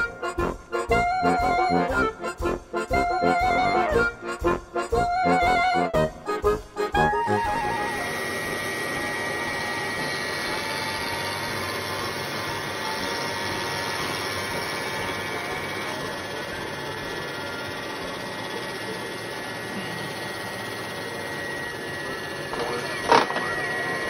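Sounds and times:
milling machine cutting wood: 0:07.3 - 0:24.0.

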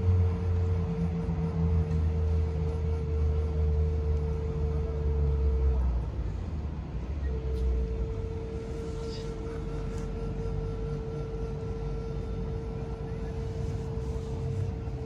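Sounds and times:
flute holding a long note: 0:07.2 - 0:15.0.

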